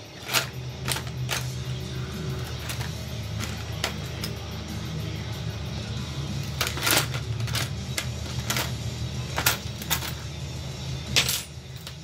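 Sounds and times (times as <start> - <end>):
steady low hum: 0.0 - 12.0
tools rattling in plastic bin: 0.2 - 1.6, 2.5 - 4.3, 6.4 - 10.3.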